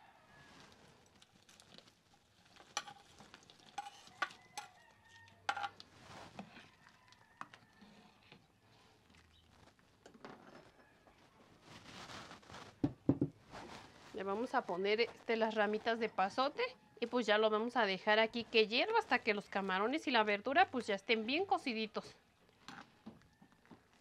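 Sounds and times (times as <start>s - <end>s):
stirring in pot: 0.6s - 10.8s, 18.3s - 24.0s
spoon clinking on clay bowls: 2.6s - 5.8s.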